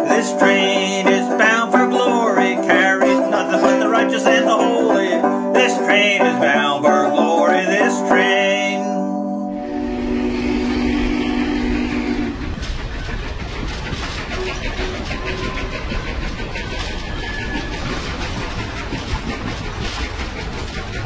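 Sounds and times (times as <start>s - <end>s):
train rumble and hiss: 0.0s - 8.9s, 9.6s - 21.0s
banjo country instrumental: 0.0s - 9.6s.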